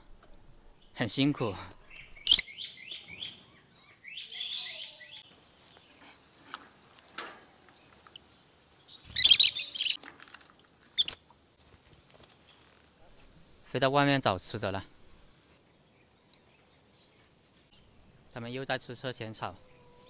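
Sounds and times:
lovebirds chirping: 0.0 - 6.1, 7.4 - 10.0, 11.0 - 11.4.

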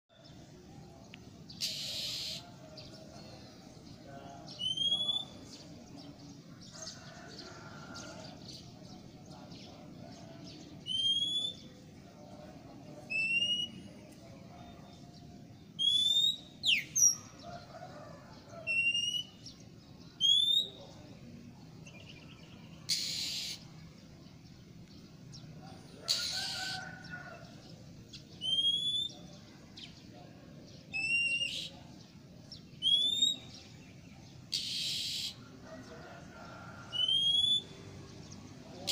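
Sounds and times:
harsh hissing bird bursts: 1.6 - 2.4, 22.9 - 23.6
bird whistled upward call: 4.6 - 5.4, 15.8 - 17.0, 28.4 - 29.2, 32.8 - 33.5, 37.0 - 37.8.

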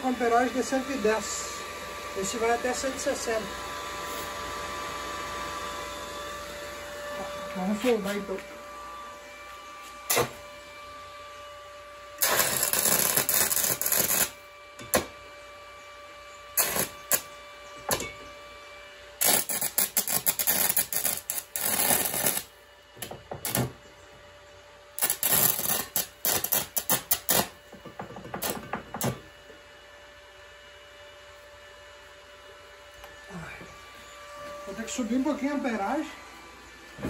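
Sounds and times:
welding arc crackling: 10.1 - 10.4, 12.2 - 15.0, 16.6 - 17.3, 19.2 - 22.5, 23.4 - 23.7, 25.0 - 27.6.

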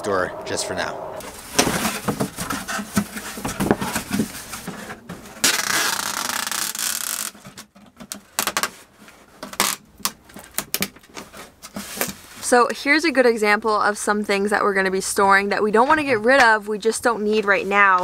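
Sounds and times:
cardboard flaps scraping and knocking: 1.3 - 8.8
packing tape ripping off roll: 5.3 - 8.8, 9.4 - 11.0.

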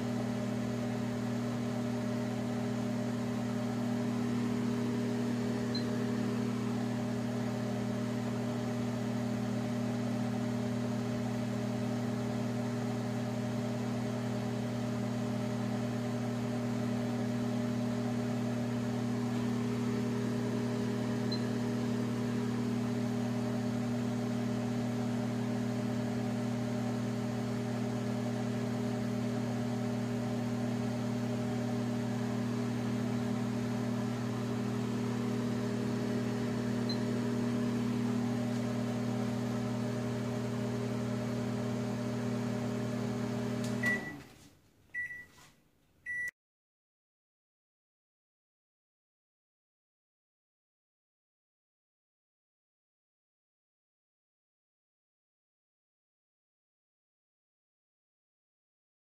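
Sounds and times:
microwave oven humming: 0.0 - 44.3, 46.1 - 46.3.

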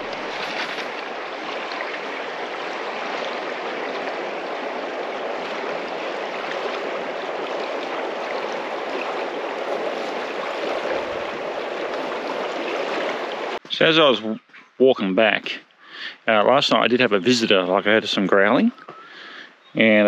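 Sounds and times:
shallow river flowing over stones: 0.0 - 13.6.

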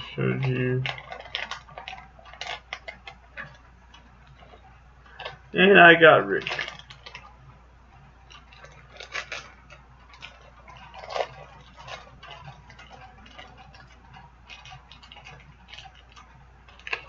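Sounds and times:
plastic pieces clicking: 0.0 - 7.4, 8.2 - 17.0
foil packet crinkling: 0.0 - 17.0.

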